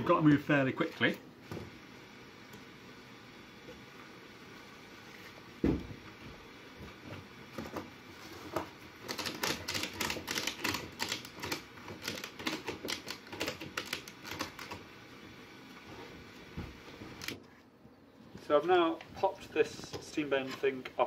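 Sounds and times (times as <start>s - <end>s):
ratchet strap clicking: 9.1s - 14.7s.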